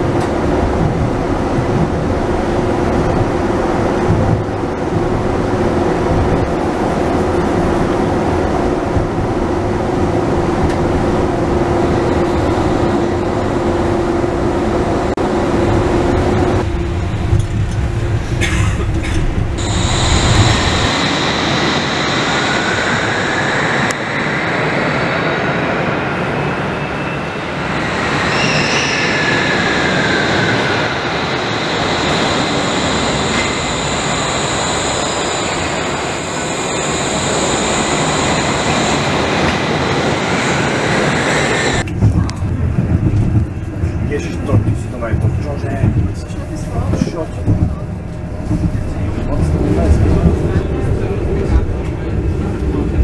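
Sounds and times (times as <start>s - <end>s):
suspension railway car rumbling: 0.0s - 53.0s
wheels squealing: 26.3s - 41.8s.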